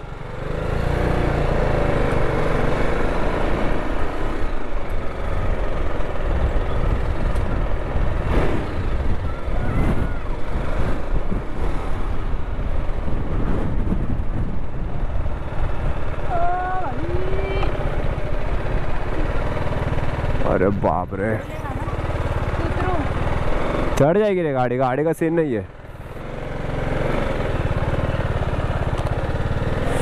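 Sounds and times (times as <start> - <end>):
motorcycle engine running: 0.0 - 30.0
steady rumble: 2.9 - 24.0.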